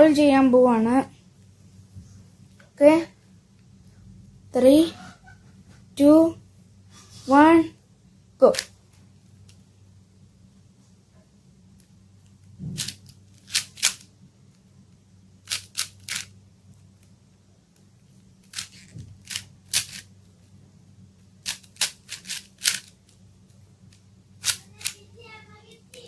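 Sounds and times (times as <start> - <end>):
puzzle cube layers clicking: 15.5 - 16.3, 18.4 - 20.0, 21.4 - 22.9.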